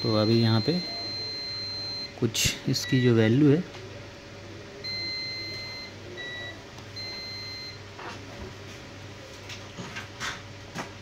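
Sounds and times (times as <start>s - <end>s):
multimeter continuity beeps: 0.0s - 3.4s, 4.8s - 7.8s.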